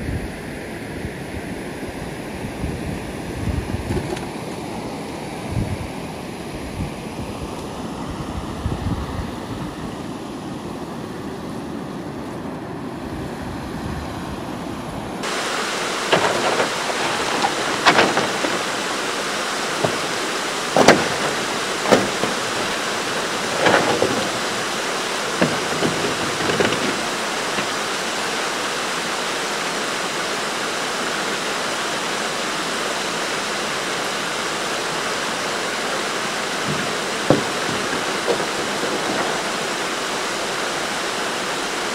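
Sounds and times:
river water rushing: 0:00.0 - 0:41.9
canoe scraping over stones: 0:15.2 - 0:28.5, 0:35.7 - 0:40.8.

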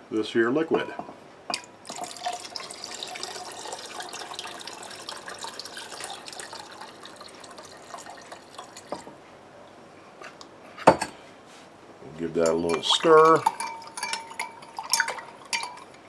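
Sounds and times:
liquid pouring and splashing: 0:01.8 - 0:09.1, 0:12.4 - 0:16.0.

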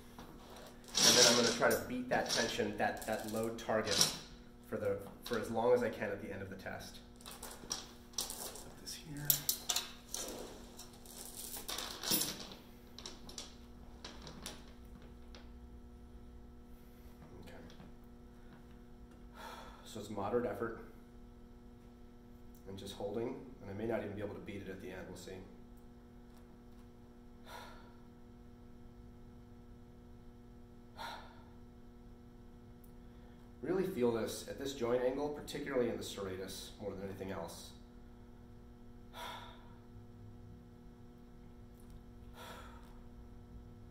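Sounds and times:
steady low hum: 0:00.0 - 0:43.9
steel chain clinking and rattling: 0:00.8 - 0:04.2, 0:07.2 - 0:14.7
man breathing hard: 0:19.3 - 0:19.9, 0:31.0 - 0:31.6, 0:39.1 - 0:39.8, 0:42.2 - 0:43.1.

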